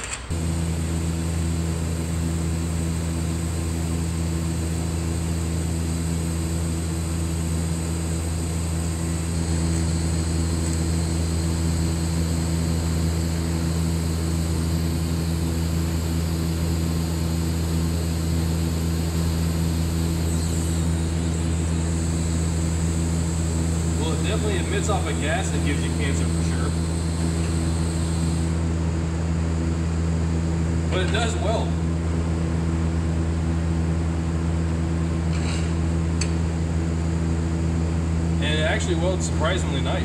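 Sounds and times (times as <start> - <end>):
welding arc hiss: 0.0 - 28.6
welding machine hum: 0.0 - 40.0.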